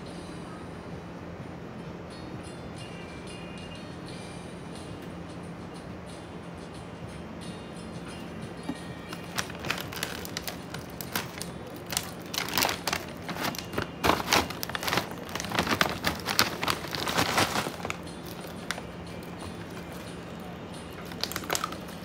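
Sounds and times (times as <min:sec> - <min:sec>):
plastic packaging crinkling: 0:09.1 - 0:22.0.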